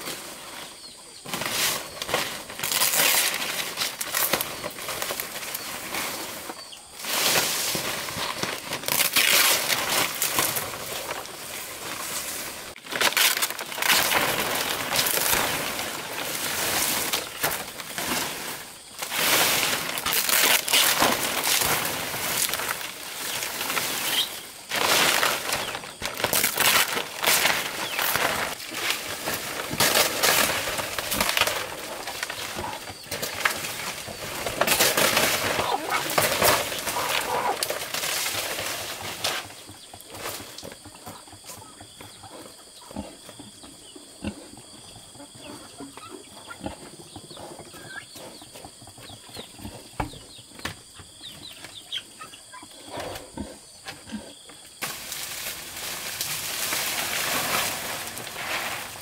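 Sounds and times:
palm leaves rustling and crackling: 0.0 - 40.8, 54.7 - 59.0.

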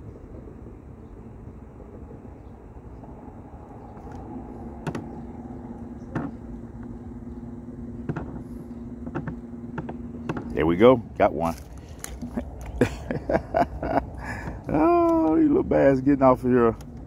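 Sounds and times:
wind and water rumble: 0.0 - 17.0
electric motor humming: 3.2 - 12.7.

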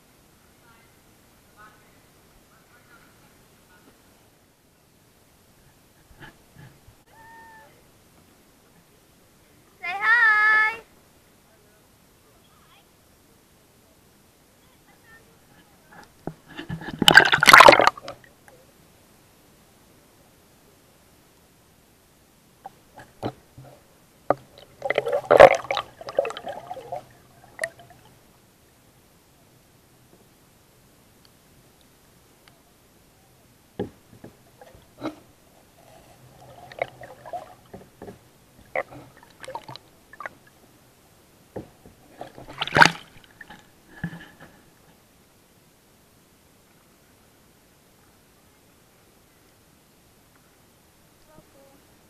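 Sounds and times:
faint low hum: 0.0 - 52.0
sharp clicks and knocks underwater: 16.0 - 18.3, 22.6 - 27.8, 36.4 - 40.4, 41.6 - 44.5
water gurgling: 16.5 - 18.4, 22.6 - 28.4, 33.8 - 44.4.

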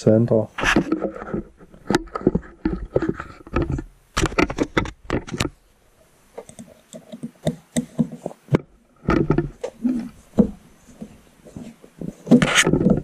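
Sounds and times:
plastic parts clicking and rattling: 0.6 - 5.6.

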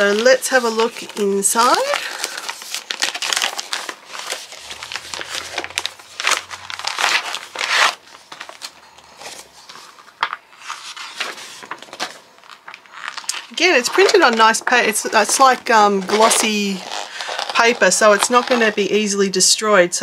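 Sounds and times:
packaging crinkling and rustling: 0.0 - 18.9.

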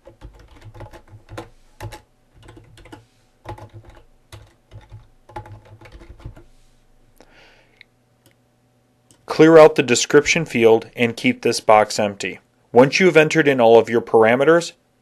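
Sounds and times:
typing on computer keyboard: 0.0 - 6.5.

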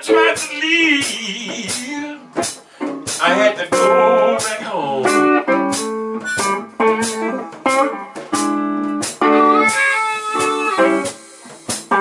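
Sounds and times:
blues harmonica: 0.0 - 12.0
picked blues guitar: 0.0 - 12.0.

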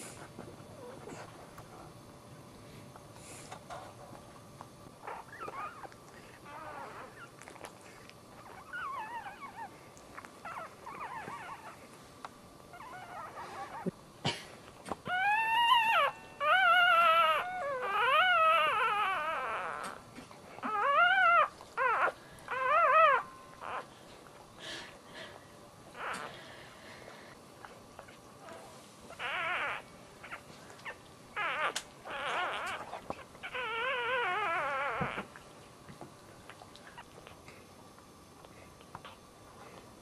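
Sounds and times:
puppy crying: 5.0 - 7.3, 8.4 - 9.7, 10.4 - 11.8, 12.7 - 13.9, 15.1 - 20.0, 20.6 - 23.9, 25.9 - 26.4, 29.1 - 35.3.

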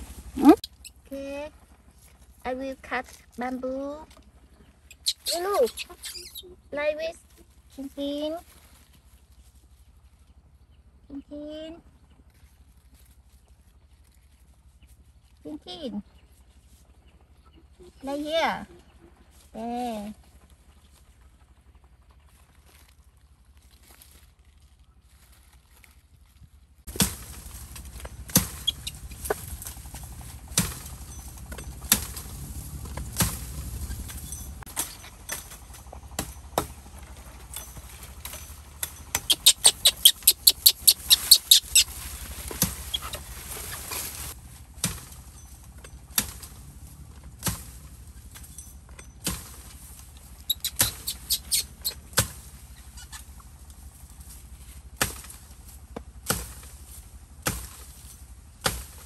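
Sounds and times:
blade chopping bamboo: 26.9 - 44.1, 44.8 - 45.4, 46.1 - 46.6, 47.3 - 48.0, 49.0 - 49.8, 50.6 - 52.6, 55.0 - 59.0.

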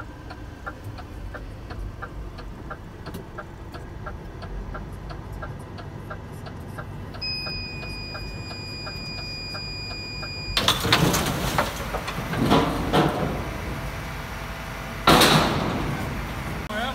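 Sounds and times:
dashboard indicator ticking: 0.0 - 10.4
crane clanks and rattles: 0.0 - 16.9
steady high beep: 7.2 - 10.6.

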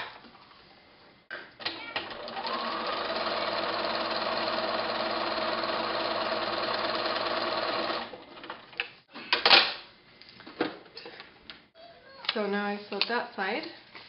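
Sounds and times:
sewing machine stitching: 1.7 - 8.6.

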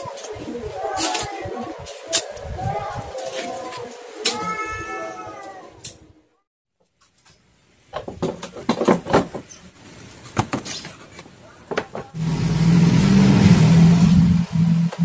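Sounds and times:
plastic parts knocking and clicking: 7.9 - 9.6, 10.3 - 12.2
machine hum with hiss: 12.2 - 15.0.

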